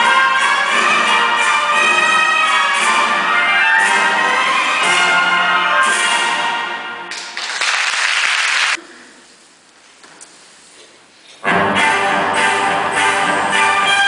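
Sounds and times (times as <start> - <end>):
orchestra playing ballet music: 0.0 - 7.4, 11.4 - 14.0
audience applause: 7.1 - 8.8.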